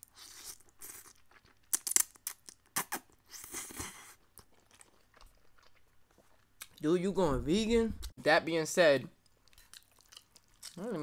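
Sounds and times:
man chewing wet food: 0.0 - 6.8, 9.2 - 11.0.

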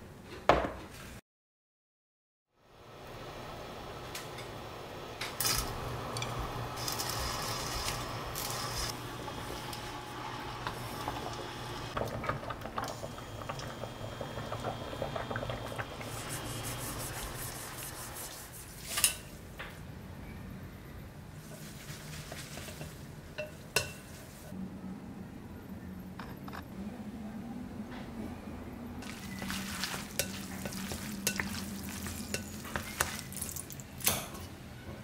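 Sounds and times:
chopsticks scraping a metal pan: 29.0 - 33.3.

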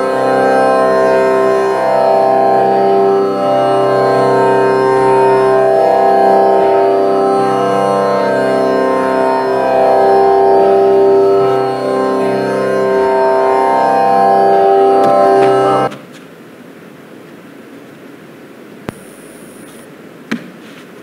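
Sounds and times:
indian classical instrumental music: 0.0 - 15.9.

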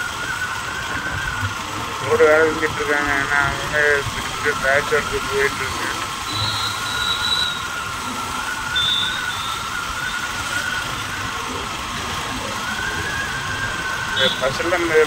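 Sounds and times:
motorcycle engine running: 0.0 - 15.0
brief high tone: 6.3 - 9.7.

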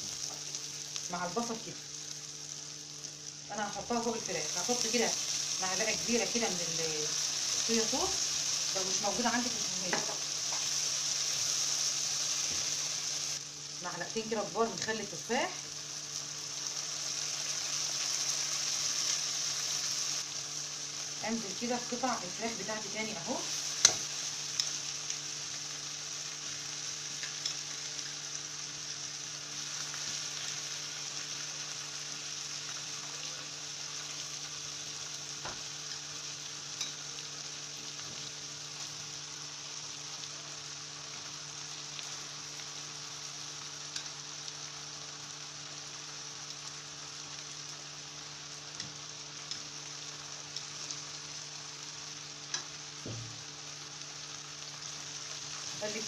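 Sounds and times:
food sizzling in a frying pan: 0.0 - 56.0
tongs clicking against a pan: 23.8 - 24.8, 52.5 - 52.8.

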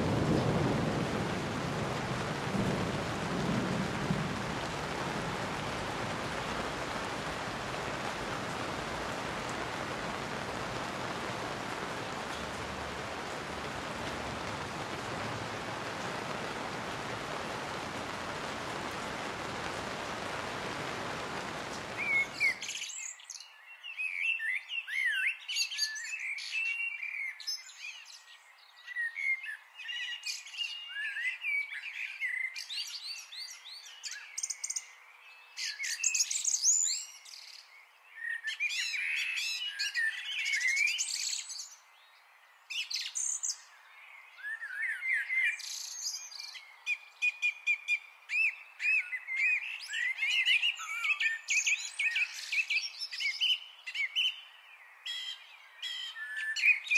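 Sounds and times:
songbirds singing and chirping: 0.0 - 56.9.

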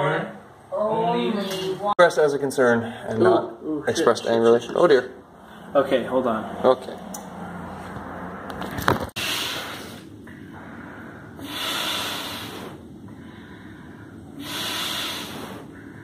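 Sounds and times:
low steady hum: 0.2 - 16.0
hissing rushes of air: 11.4 - 12.9, 14.4 - 15.8.

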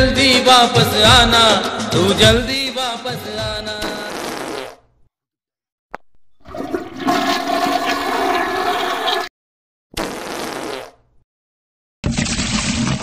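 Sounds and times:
toilet flush water rush: 6.4 - 9.3, 12.0 - 13.0.

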